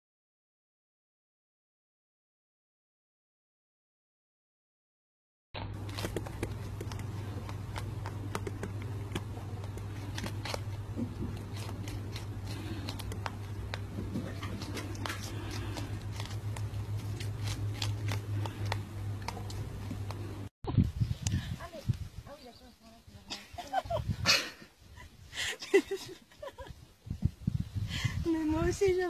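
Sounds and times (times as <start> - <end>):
rabbit chewing and crunching: 5.6 - 22.1
steady low hum: 5.6 - 29.0.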